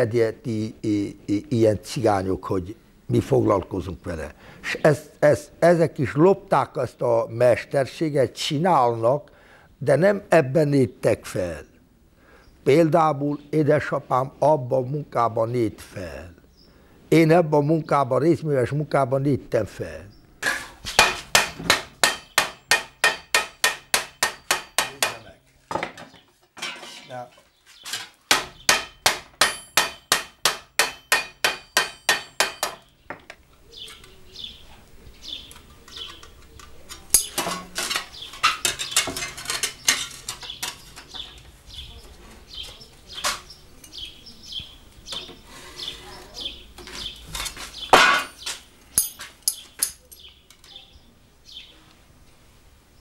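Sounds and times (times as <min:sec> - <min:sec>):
hammer striking sheet metal: 0:21.0 - 0:25.2, 0:28.3 - 0:32.8.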